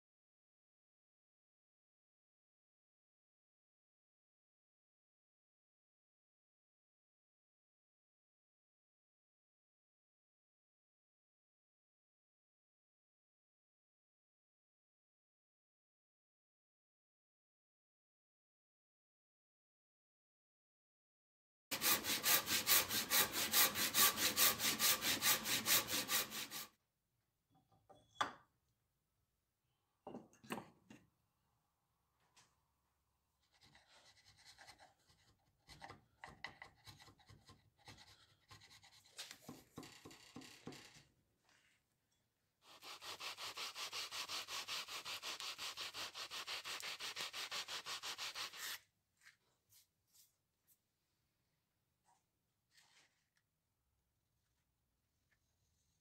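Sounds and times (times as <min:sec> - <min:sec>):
tool scraping wood: 0:21.7 - 0:26.7, 0:33.5 - 0:41.0.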